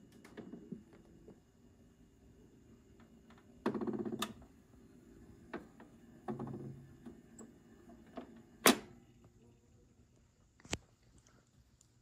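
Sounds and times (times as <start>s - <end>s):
record changer mechanical clattering: 0.0s - 1.4s, 2.8s - 4.6s, 5.2s - 9.0s.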